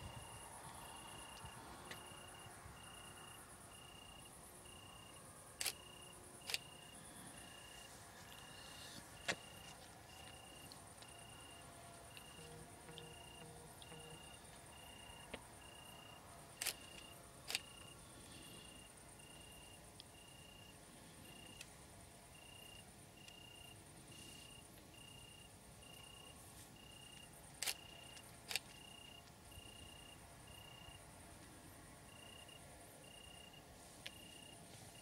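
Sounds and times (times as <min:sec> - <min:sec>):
crickets chirping: 0:00.0 - 0:35.0
high insect buzz: 0:00.1 - 0:21.6
sharp clicks: 0:05.6 - 0:06.8, 0:16.6 - 0:17.9, 0:27.1 - 0:29.4.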